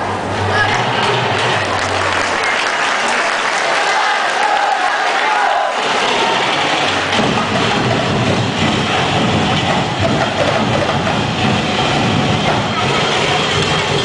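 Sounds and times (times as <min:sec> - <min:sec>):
crowd noise: 0:00.0 - 0:14.0
festival drumming: 0:05.8 - 0:14.0
heavy low rumble: 0:05.8 - 0:14.0.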